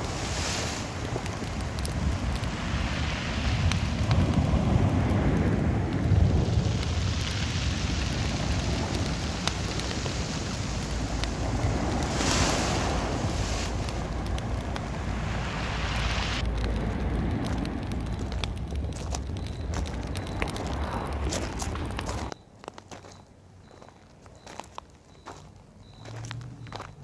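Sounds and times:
sea surf: 0.0s - 17.7s
wind rushing: 0.0s - 22.3s
low rumble: 3.6s - 22.4s.

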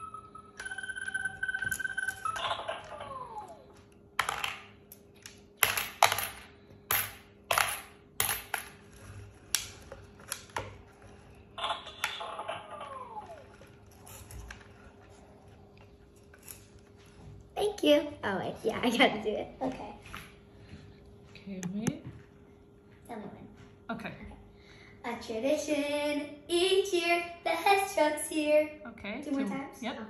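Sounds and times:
toy beeping tone: 0.0s - 3.6s.

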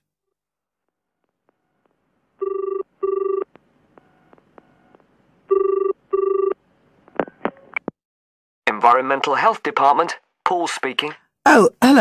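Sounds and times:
telephone ringing: 2.4s - 6.6s.

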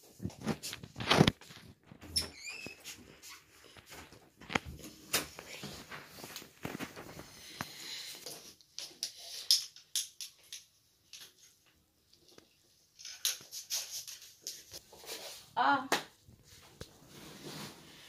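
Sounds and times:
fabric rustling: 2.9s - 7.6s.

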